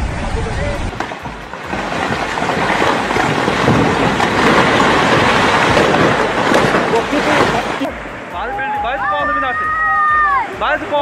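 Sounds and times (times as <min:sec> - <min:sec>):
building collapsing rumble: 0:00.0 - 0:08.1
flash flood roaring: 0:00.0 - 0:08.3.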